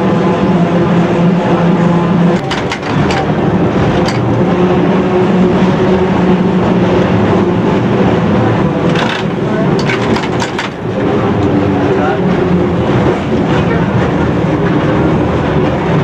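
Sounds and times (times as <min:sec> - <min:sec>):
tram motor hum: 0:00.0 - 0:16.0
wheel and rail noise: 0:00.0 - 0:16.0
wheels clicking on track: 0:02.2 - 0:04.6, 0:07.8 - 0:16.0.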